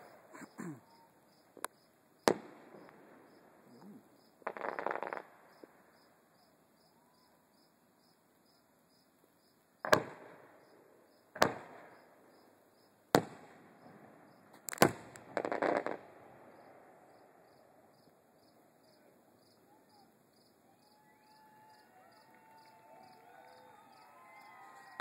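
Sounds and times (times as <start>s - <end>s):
fireworks crackling: 0.0s - 0.8s, 1.4s - 6.0s, 13.2s - 16.6s
insects chirping: 0.1s - 9.8s, 13.8s - 14.5s, 15.4s - 24.6s
distant fireworks bangs: 2.2s - 5.9s, 9.8s - 10.6s, 11.3s - 12.2s, 13.1s - 17.0s.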